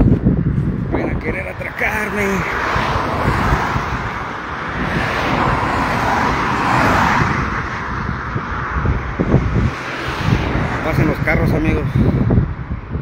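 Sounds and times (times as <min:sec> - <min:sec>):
car passing on highway: 0:00.0 - 0:13.0.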